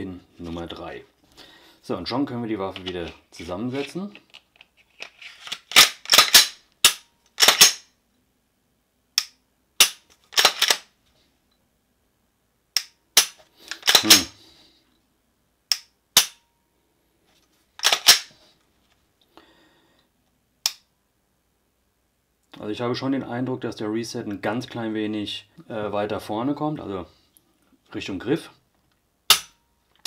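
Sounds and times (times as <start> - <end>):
pistol metallic clicks and snaps: 5.4 - 7.9, 9.2 - 10.9, 12.8 - 14.3, 15.7 - 16.4, 17.8 - 18.3, 20.6 - 20.9, 29.3 - 29.6.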